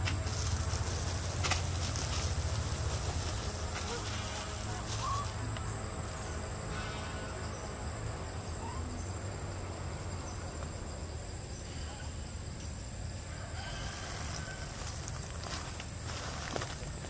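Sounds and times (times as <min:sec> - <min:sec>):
thin high insect tone: 0:00.0 - 0:17.0
faint short chirping calls: 0:03.8 - 0:05.5.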